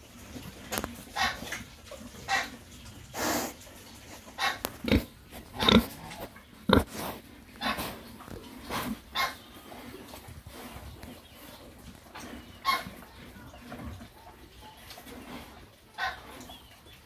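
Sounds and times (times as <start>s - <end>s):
pigs grunting: 1.0s - 14.2s.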